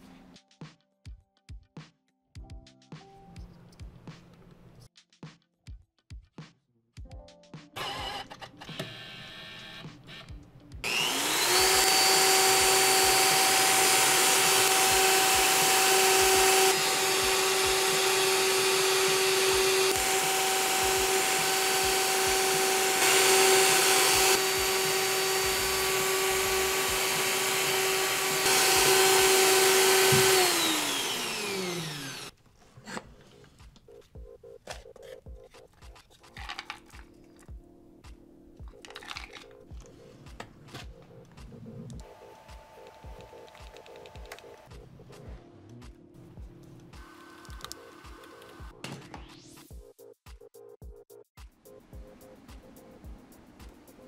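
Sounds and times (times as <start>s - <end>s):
electric drill whining: 7.8s - 32.4s
handling sounds: 32.3s - 37.5s, 38.6s - 41.5s.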